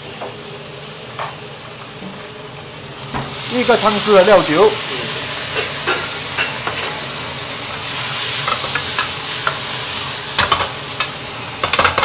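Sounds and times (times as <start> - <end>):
food sizzling in a wok: 0.0 - 12.0
spatula clattering: 10.4 - 12.0.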